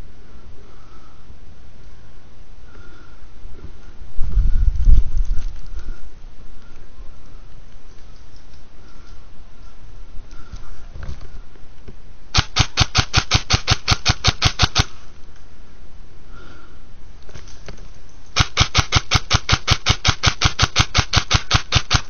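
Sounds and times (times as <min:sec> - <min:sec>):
airsoft rifle automatic bursts: 0:12.3 - 0:15.0, 0:18.4 - 0:22.0.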